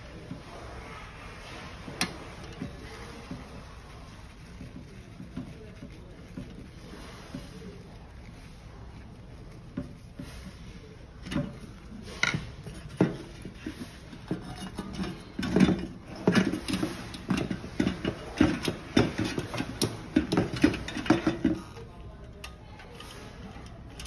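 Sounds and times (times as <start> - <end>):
metal parts clicking and knocking: 11.2 - 24.0.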